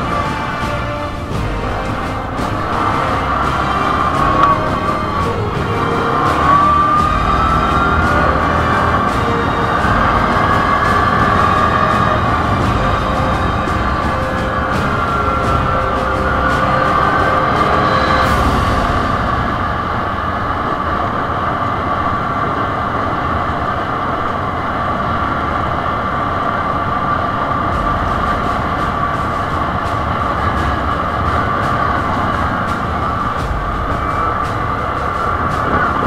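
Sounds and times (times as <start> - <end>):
tyres rumbling on gravel: 0.0 - 20.2.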